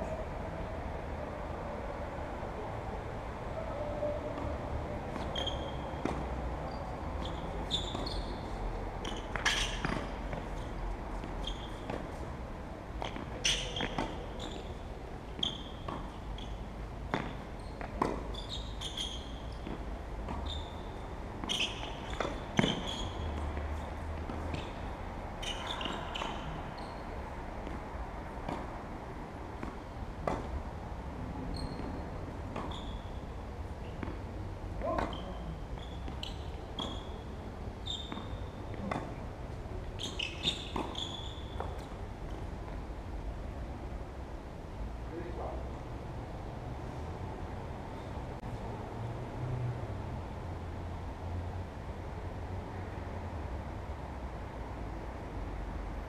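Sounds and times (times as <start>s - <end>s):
tennis ball bouncing on court: 4.4s - 6.4s, 7.2s - 8.3s, 9.0s - 12.2s, 13.0s - 14.8s, 15.4s - 20.6s, 21.4s - 27.0s, 27.6s - 30.6s, 31.5s - 33.0s, 33.8s - 42.8s
tennis ball struck by rackets: 9.0s - 10.6s, 17.1s - 18.4s, 21.4s - 24.8s, 28.4s - 28.7s, 29.6s - 30.5s, 34.8s - 35.3s, 38.0s - 39.2s.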